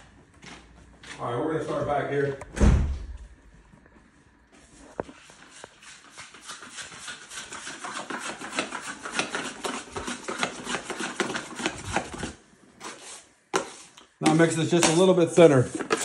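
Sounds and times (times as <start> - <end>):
knife scraping compound in metal pan: 5.1 - 16.0.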